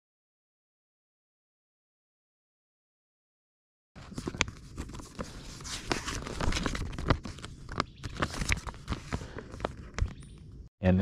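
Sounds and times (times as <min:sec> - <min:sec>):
footsteps on forest trail: 0:07.8 - 0:10.3.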